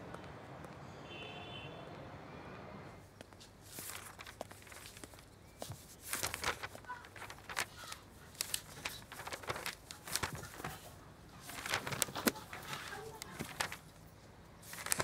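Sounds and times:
paper rustling: 3.4s - 15.0s
pages turning: 3.6s - 14.0s, 14.6s - 15.0s.

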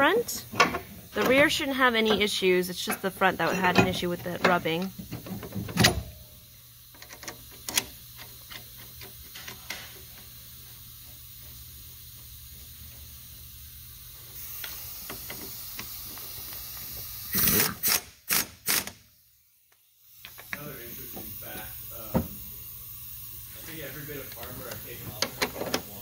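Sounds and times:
impact wrench bursts: 14.4s - 19.2s.

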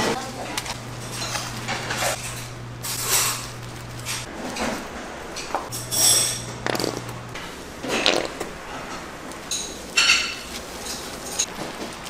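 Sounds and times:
low hum: 0.0s - 9.3s
utensils scraping and knocking: 0.0s - 12.0s
metallic ring: 5.7s - 6.5s.

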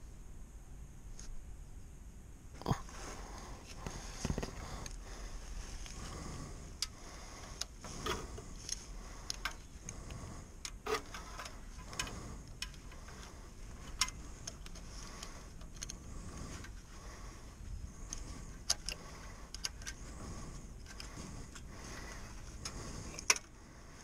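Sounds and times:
hand tools clicking and knocking: 7.4s - 9.7s, 20.8s - 23.5s.

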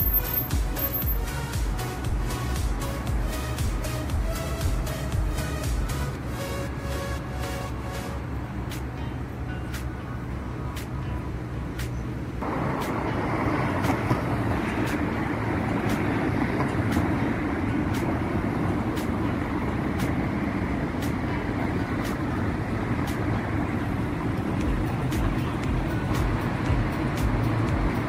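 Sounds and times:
road vehicles passing: 0.0s - 28.0s.

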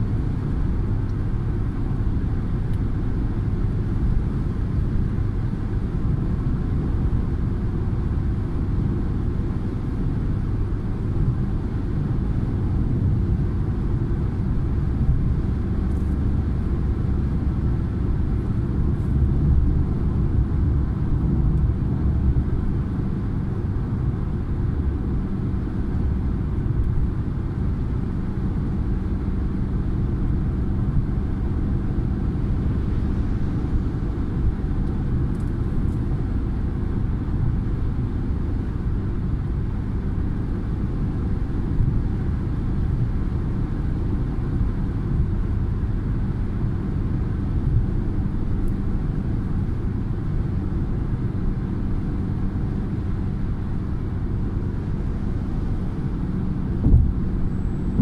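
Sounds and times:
car engine running: 0.0s - 58.0s
tyre and road noise: 53.9s - 58.0s.

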